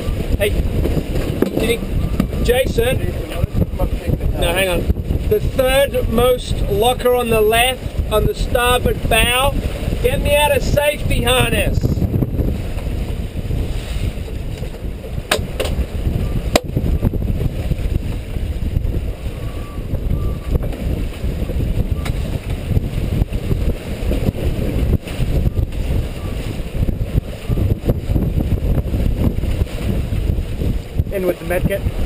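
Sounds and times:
wind buffeting microphone: 0.0 - 32.0
sharp knocks: 15.3 - 15.8, 16.5 - 16.7.

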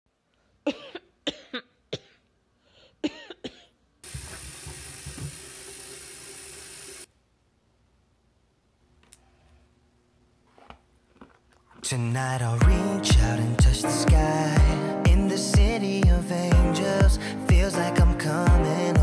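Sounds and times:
person coughing: 0.7 - 2.3, 3.0 - 3.8
sink tap running: 4.0 - 7.1.

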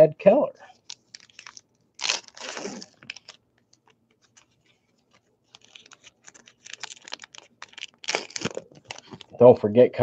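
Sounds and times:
cards rustling: 0.7 - 9.4
foil wrapper crinkling and tearing: 0.8 - 9.4.

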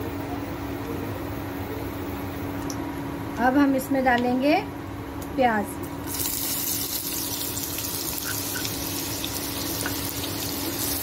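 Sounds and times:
onions sizzling in hot oil: 6.0 - 11.0.

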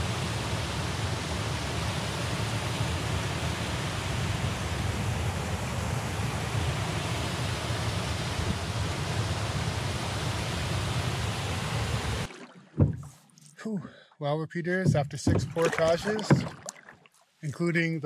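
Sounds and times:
waterfall rushing over rocks: 0.0 - 12.3.

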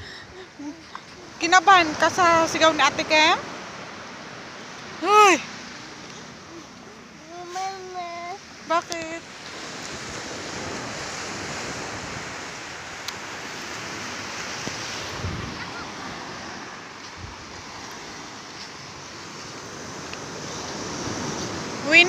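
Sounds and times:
small waves washing on sand: 0.0 - 22.0
wind thumps on microphone: 14.6 - 15.8, 17.1 - 17.7.

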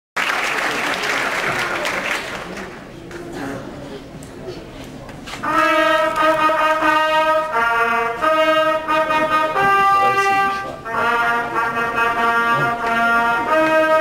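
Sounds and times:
trumpet playing held notes: 5.4 - 14.0.

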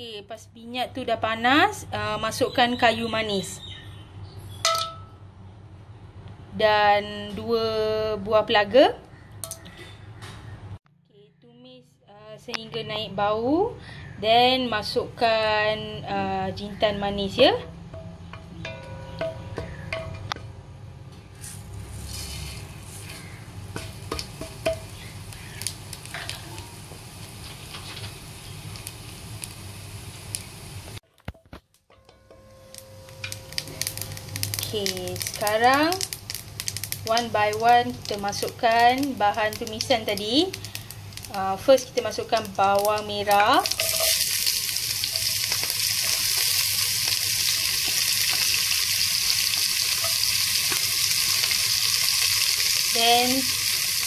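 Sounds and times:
spatula tapping pot: 17.6 - 20.5, 23.7 - 25.5
spices sizzling in hot fat: 21.3 - 31.6, 32.2 - 54.0
spatula stirring: 43.3 - 52.9.

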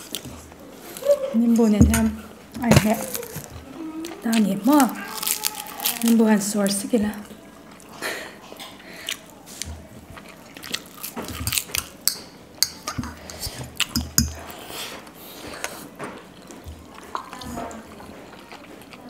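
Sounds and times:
crunchy bites and chewing: 4.1 - 6.2, 9.0 - 12.0
chopsticks clicking on ceramic bowls: 12.1 - 14.4.

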